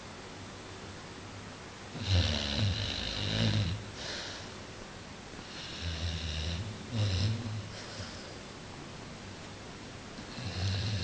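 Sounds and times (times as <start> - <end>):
dog snoring: 1.9 - 4.3, 5.4 - 8.2, 10.2 - 11.0.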